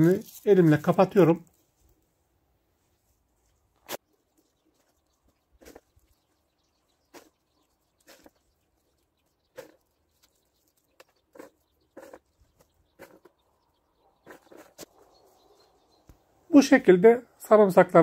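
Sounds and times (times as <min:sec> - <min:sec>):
faint scuffs in stony soil: 0:00.0 - 0:02.1, 0:03.0 - 0:13.4, 0:14.2 - 0:15.6.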